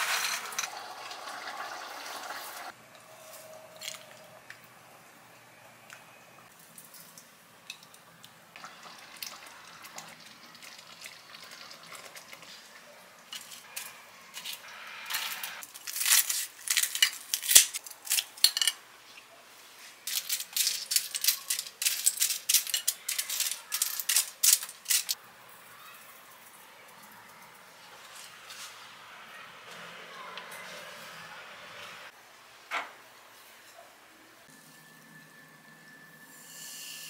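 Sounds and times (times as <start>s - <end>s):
garlic pieces rattling onto plate: 20.1s - 25.2s.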